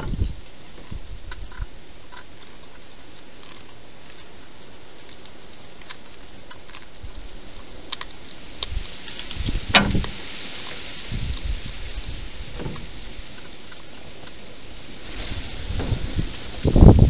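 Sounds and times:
hedgehogs crunching food: 0.0 - 17.0
steady hiss: 0.0 - 17.0.

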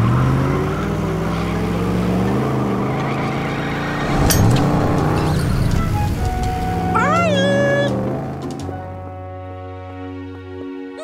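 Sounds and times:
cartoon truck engine revving: 0.0 - 9.0
sharp crash: 4.0 - 6.4.

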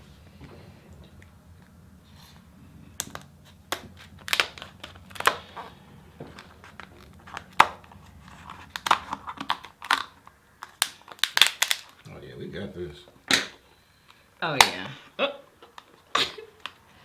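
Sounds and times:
lobster shell cracking: 3.0 - 5.7, 6.4 - 12.0.

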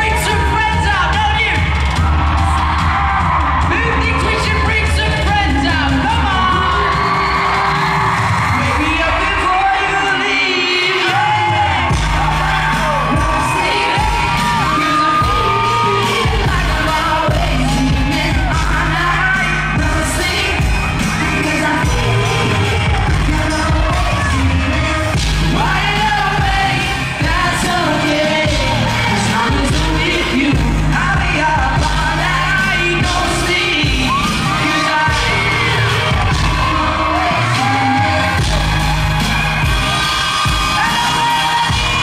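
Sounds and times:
live pop band playing: 0.0 - 42.0
group singing: 10.4 - 39.4.

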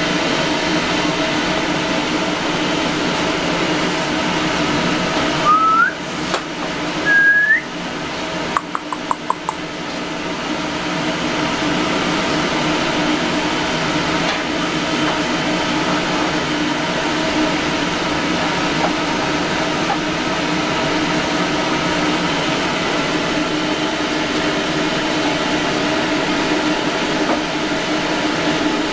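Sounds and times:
fan humming: 0.0 - 28.9
short rising whistles: 5.4 - 6.0, 7.0 - 7.7
quick clicks: 8.6 - 9.6.

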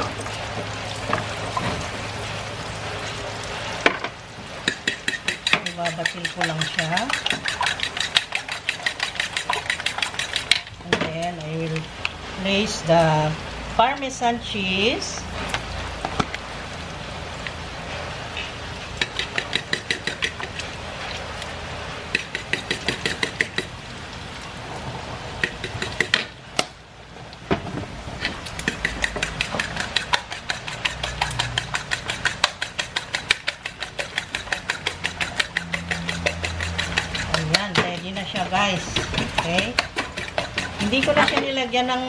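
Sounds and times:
metal spoon beating eggs in a bowl: 4.7 - 10.7, 19.0 - 20.7, 22.2 - 23.7, 28.6 - 41.6.

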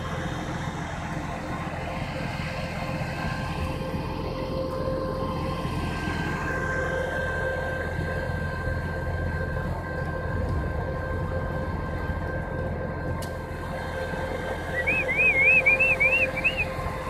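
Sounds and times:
truck engine rumbling: 0.0 - 17.0
warbling whistle: 14.6 - 16.9.

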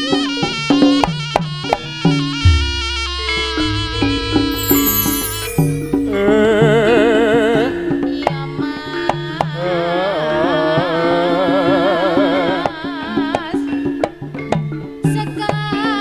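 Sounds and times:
drum strokes: 2.4 - 7.1
high wavering melody: 2.4 - 8.2
low gong-chime notes: 2.4 - 8.2.

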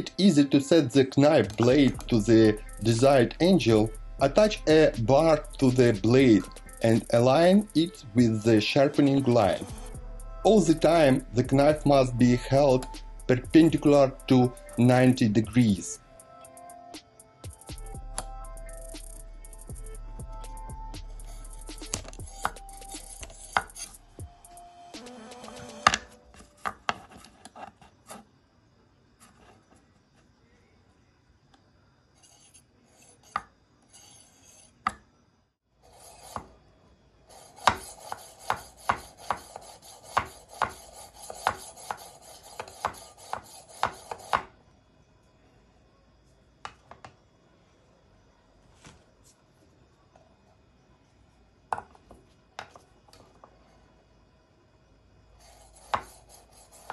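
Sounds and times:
sharpening stone scraping knife: 22.2 - 24.0, 32.2 - 34.8.

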